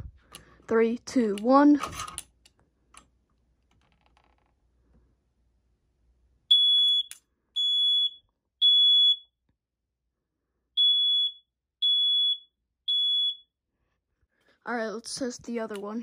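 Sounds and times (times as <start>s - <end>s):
smoke alarm beeping: 6.5s - 9.4s, 10.8s - 13.5s.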